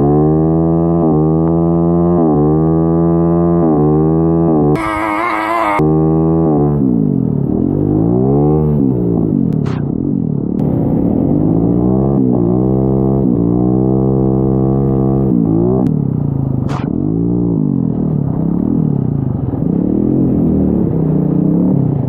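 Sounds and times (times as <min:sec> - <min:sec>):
small engine revving: 0:00.0 - 0:06.9.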